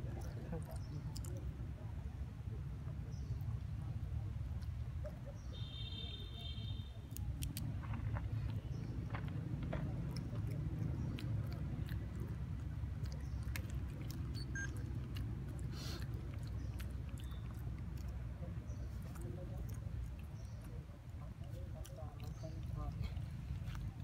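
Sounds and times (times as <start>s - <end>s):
monkey chewing food: 0.0s - 1.6s, 7.0s - 24.0s
steady low rumble: 7.2s - 24.0s.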